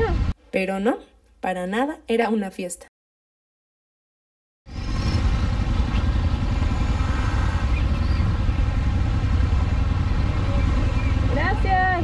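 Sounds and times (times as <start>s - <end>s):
motorcycle engine rumbling: 4.7s - 12.0s.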